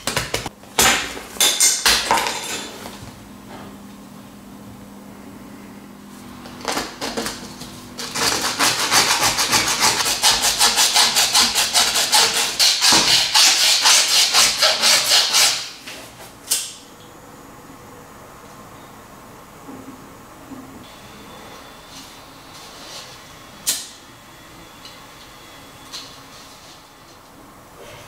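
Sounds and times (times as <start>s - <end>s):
file rasping on plastic: 8.0s - 15.8s.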